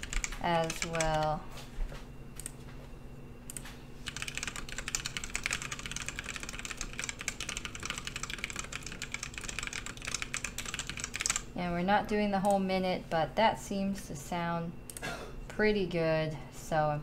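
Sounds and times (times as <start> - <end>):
mechanical keyboard typing: 0.0 - 1.4, 3.5 - 11.5.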